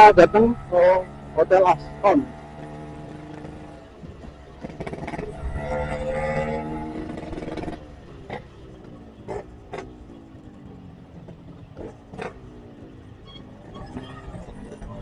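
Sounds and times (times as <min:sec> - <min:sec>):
motorcycle engine running: 0:00.0 - 0:15.0
road noise: 0:00.0 - 0:15.0.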